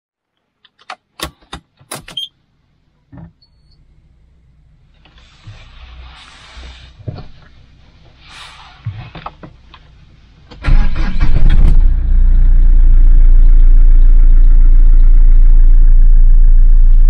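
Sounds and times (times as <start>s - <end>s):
car engine cranking and idling: 9.2s - 17.0s.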